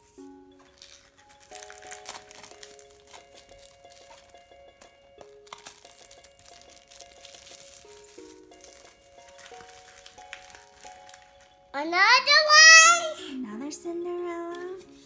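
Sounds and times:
plastic wrap crinkling and tearing: 0.0 - 11.7
background music with held notes: 0.0 - 15.0.

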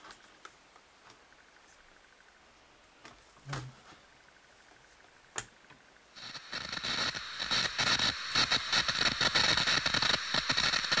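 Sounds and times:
tv static glitch: 6.2 - 11.0.

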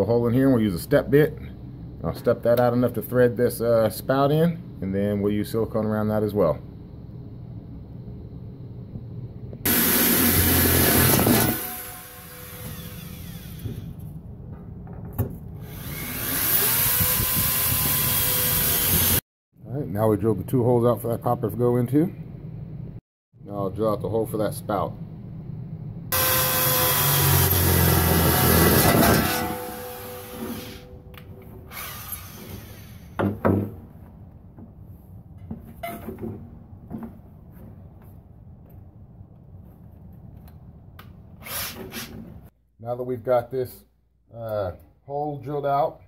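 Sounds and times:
electric drill boring metal: 9.7 - 13.9, 15.6 - 19.2, 26.1 - 30.9, 31.7 - 33.2.

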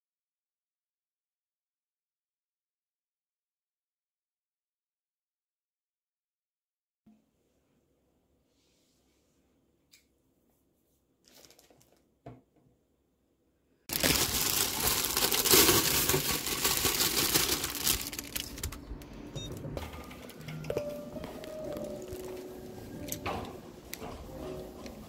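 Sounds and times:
loud close crinkling: 13.9 - 18.8.

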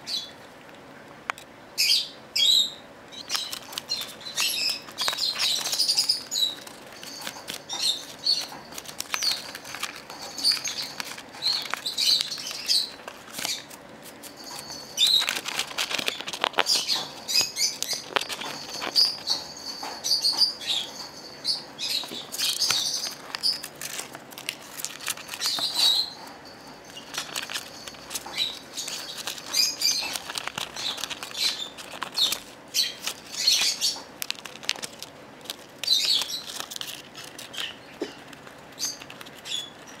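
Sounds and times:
bird chirping high calls: 1.8 - 9.5, 10.2 - 13.7, 14.4 - 15.4, 16.1 - 23.7, 25.3 - 27.1, 27.7 - 34.1, 35.8 - 36.6
paper crackling and rustling: 3.2 - 19.5, 21.9 - 40.0.

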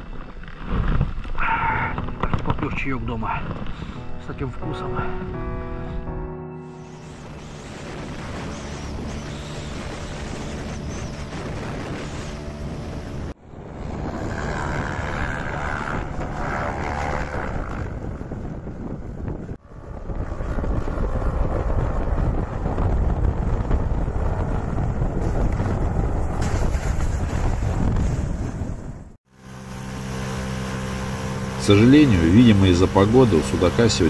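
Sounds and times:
airboat engine and propeller: 6.8 - 27.0, 29.3 - 34.0
wind buffeting microphone: 6.8 - 29.2.

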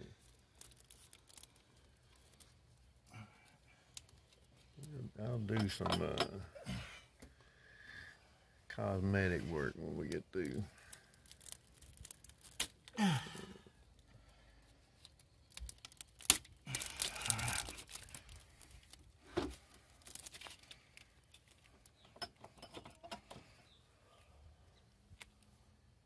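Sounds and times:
plastic rustling: 0.0 - 5.1, 9.5 - 22.6.

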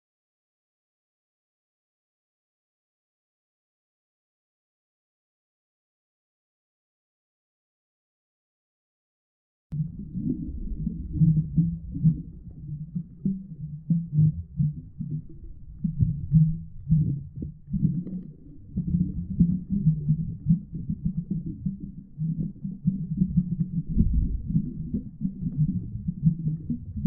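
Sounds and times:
muffled underwater rumbling: 9.7 - 27.0.

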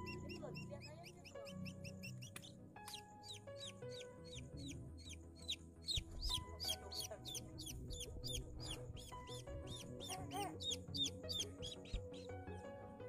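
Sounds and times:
chicks peeping: 0.0 - 12.4.

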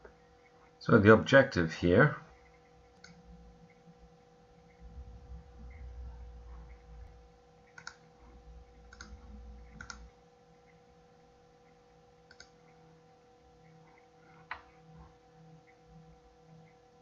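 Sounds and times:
steady electrical hum: 0.0 - 17.0
computer mouse clicks: 2.5 - 3.8, 7.7 - 8.1, 8.9 - 10.8, 12.3 - 12.8, 13.6 - 14.8.

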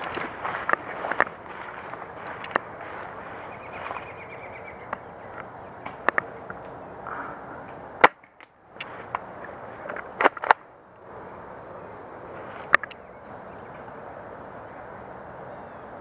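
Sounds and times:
brush rustling: 0.0 - 4.9, 7.7 - 10.6, 12.3 - 13.0
airsoft gun shots clicking: 8.0 - 8.5.

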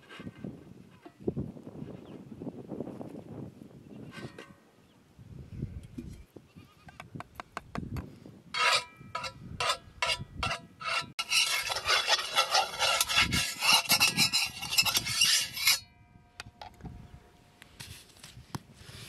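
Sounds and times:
metal spoon scraping iron pan: 4.0 - 4.5, 8.6 - 15.9.

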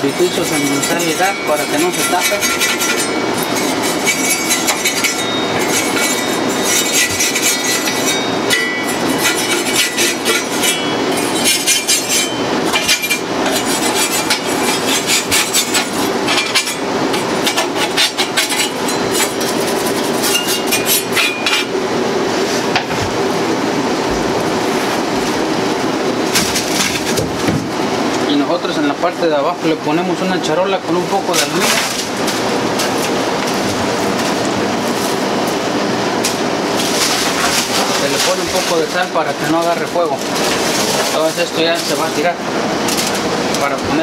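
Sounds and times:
steel wool scraping metal: 0.0 - 21.7.

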